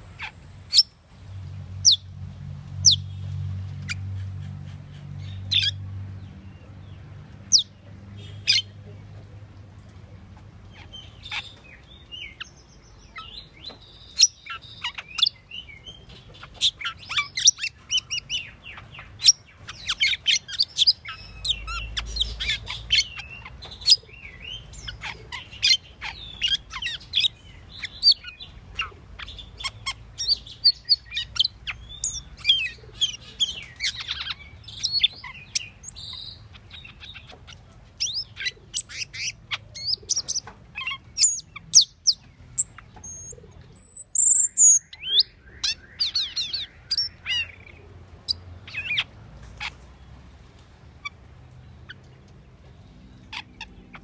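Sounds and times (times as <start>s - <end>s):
starling singing: 7.4s - 8.9s, 10.7s - 49.8s.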